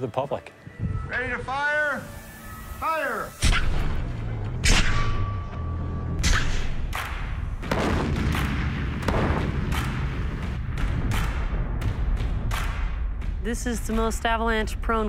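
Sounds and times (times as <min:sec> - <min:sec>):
explosion booms: 0:07.6 - 0:13.0.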